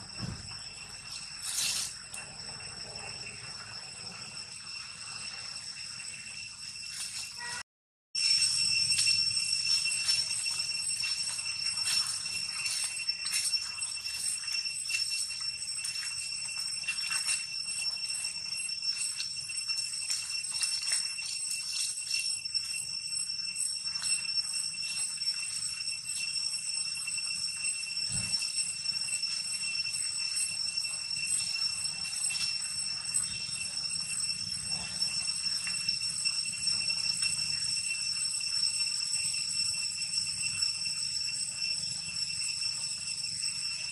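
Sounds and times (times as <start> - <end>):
high-pitched ringing drone: 0.0 - 43.9.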